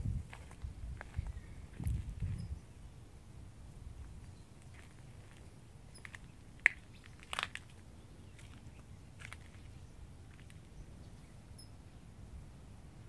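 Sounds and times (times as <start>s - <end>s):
crunchy clicks and crackles: 4.0s - 10.8s.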